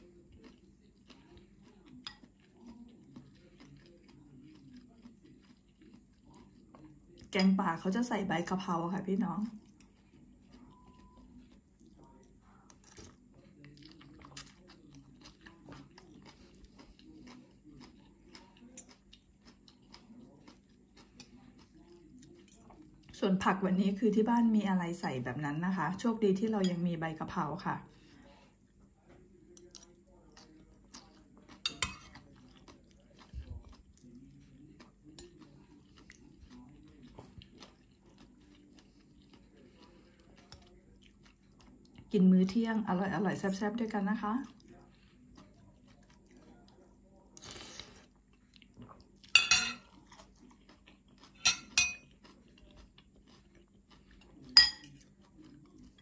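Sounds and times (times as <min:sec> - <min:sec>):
soft chewing: 0:00.0 - 0:56.0
cutlery clinking on ceramic bowl: 0:31.6 - 0:32.3, 0:49.3 - 0:50.0, 0:51.4 - 0:52.2, 0:54.2 - 0:55.0.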